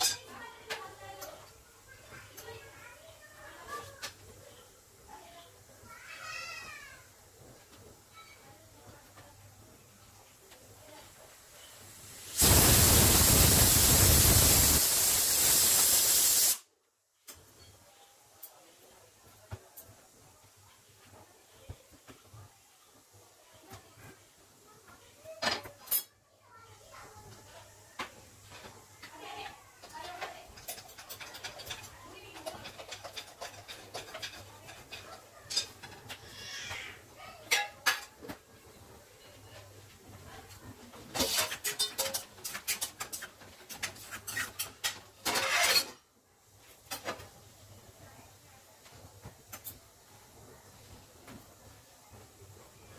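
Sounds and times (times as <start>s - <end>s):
pressure cooker whistle hissing: 12.3s - 16.6s.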